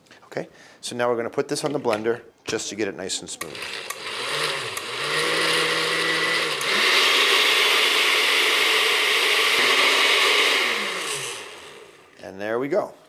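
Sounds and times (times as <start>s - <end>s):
blender motor whirring: 3.4s - 12.2s.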